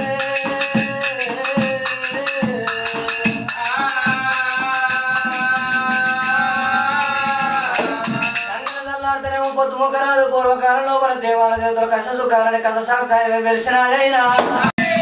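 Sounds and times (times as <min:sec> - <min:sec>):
drum strokes: 0:00.0 - 0:09.6, 0:14.3 - 0:15.0
jingling metal percussion: 0:00.0 - 0:09.9, 0:14.3 - 0:15.0.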